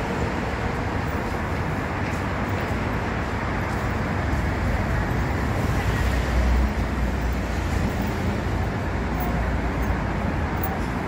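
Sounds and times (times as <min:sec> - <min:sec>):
city street traffic: 0:00.0 - 0:11.0.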